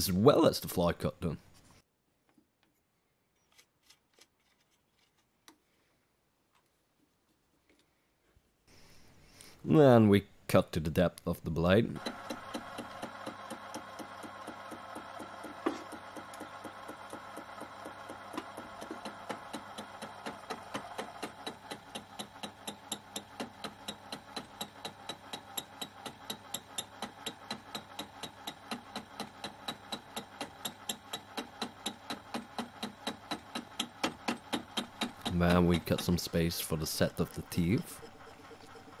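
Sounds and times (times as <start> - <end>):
cutter ticking on metal: 12.0 - 39.0
milling machine hum: 12.0 - 39.0.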